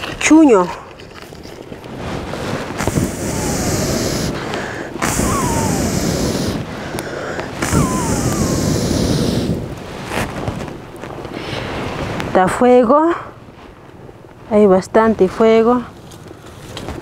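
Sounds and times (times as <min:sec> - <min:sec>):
person blowing on a fire: 0:02.0 - 0:10.4.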